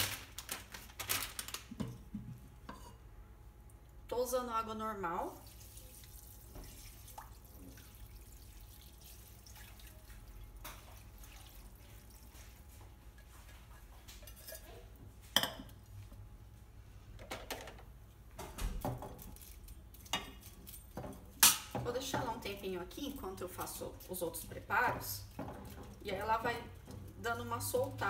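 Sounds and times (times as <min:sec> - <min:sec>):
water trickling into bowl: 0:05.3 - 0:12.6
utensil clinking on glass bowl: 0:14.1 - 0:15.8.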